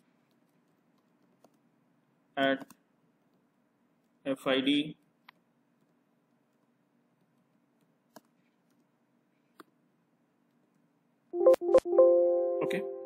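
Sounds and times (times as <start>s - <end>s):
computer alert chime: 11.4s - 13.0s.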